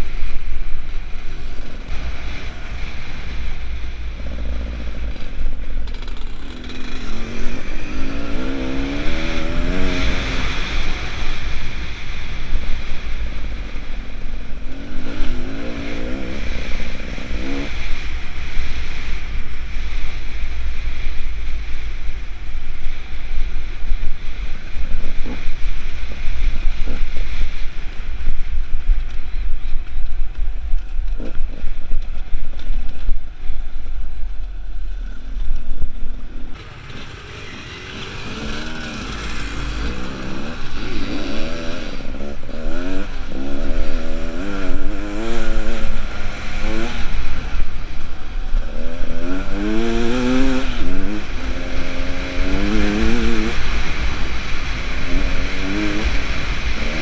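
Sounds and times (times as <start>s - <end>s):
wind rumble on microphone: 0.0s - 57.0s
motorbike engine revving: 1.2s - 19.0s, 34.8s - 57.0s.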